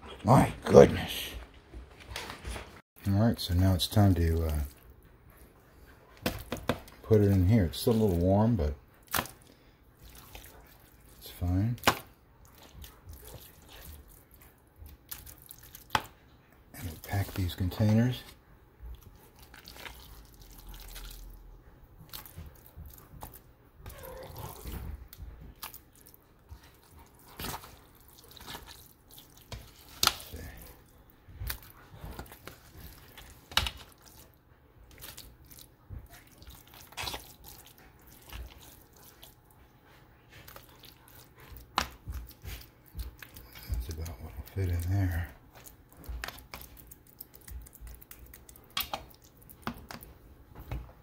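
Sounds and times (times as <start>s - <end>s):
wet plops of food: 9.0s - 10.9s, 45.6s - 50.1s.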